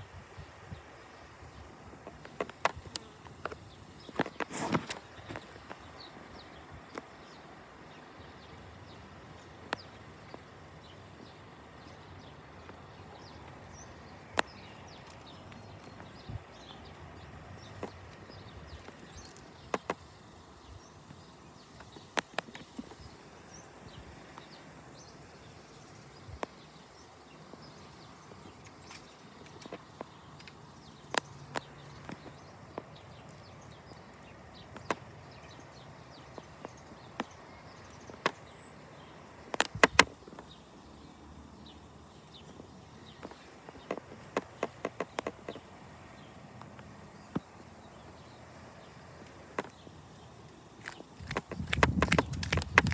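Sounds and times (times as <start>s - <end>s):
faint steady high hiss: 0.0s - 52.9s
rapid small ticks: 0.9s - 52.9s
sharp clicks and taps: 39.5s - 40.5s, 50.8s - 52.9s.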